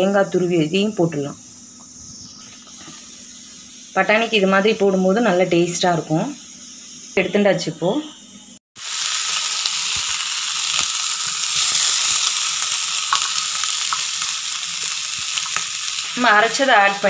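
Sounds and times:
paste sizzling in hot oil: 0.7 - 5.7, 8.8 - 17.0.

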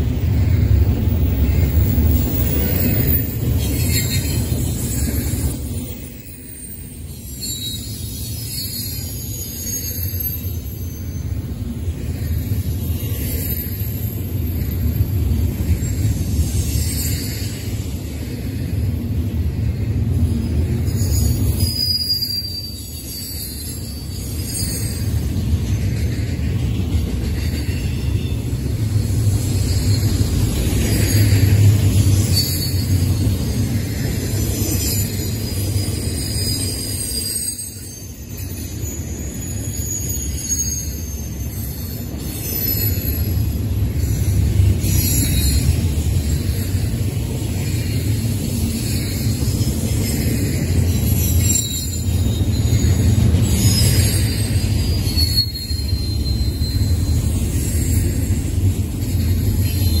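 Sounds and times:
high wheel squeals: 0.0 - 18.7, 20.5 - 60.0
train cars rumbling past: 0.0 - 60.0.

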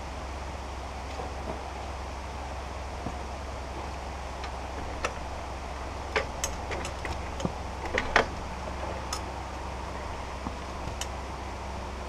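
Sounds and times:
steady low hum: 0.0 - 12.0
clicks and taps on steel rail: 3.8 - 9.4, 10.0 - 11.2.

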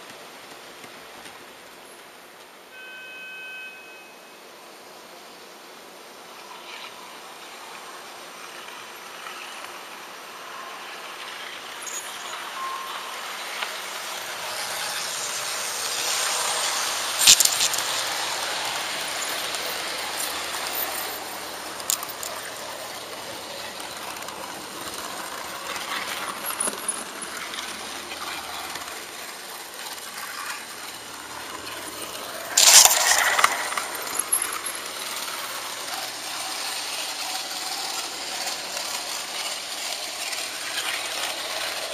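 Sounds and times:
model train wheels rolling on rail: 5.6 - 41.9
wheels clattering over track: 8.5 - 41.9.

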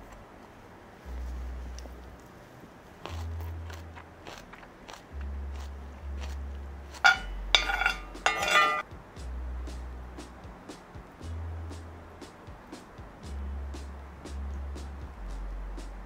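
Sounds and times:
soft chewing: 1.2 - 7.0.

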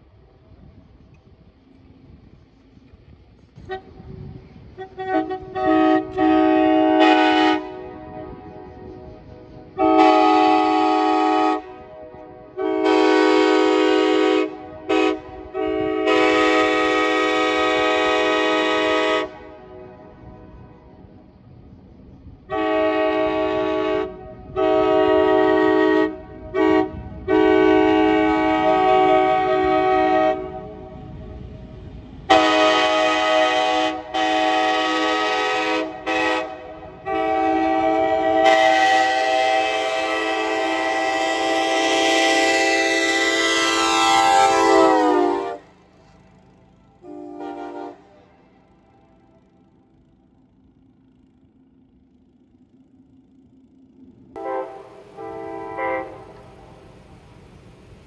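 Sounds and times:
train air horn blasts: 3.6 - 20.8, 22.5 - 31.4, 32.2 - 50.0, 54.4 - 56.8.

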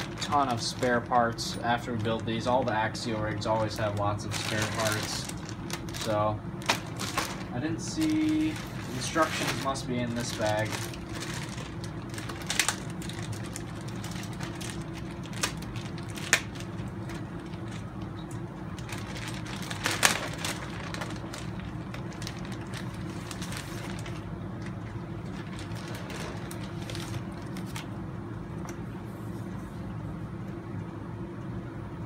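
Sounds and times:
plastic bags crinkling: 0.0 - 28.0
steady low hum: 0.0 - 32.0.

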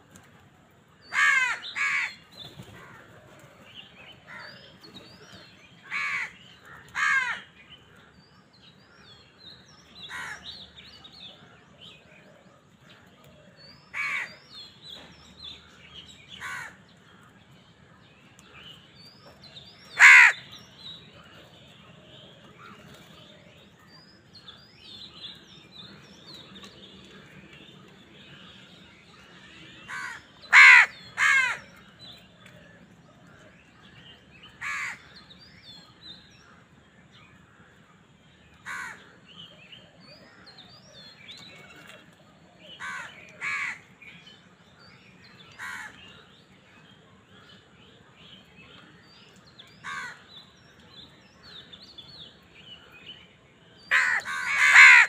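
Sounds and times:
small birds chirping: 0.0 - 55.0
crows cawing: 1.1 - 3.1, 5.8 - 7.5, 10.1 - 10.4, 14.0 - 14.3, 16.4 - 16.8, 20.0 - 20.6, 29.9 - 31.7, 34.6 - 35.1, 38.6 - 39.1, 42.8 - 43.8, 45.6 - 46.0, 49.8 - 50.3, 53.9 - 55.0.

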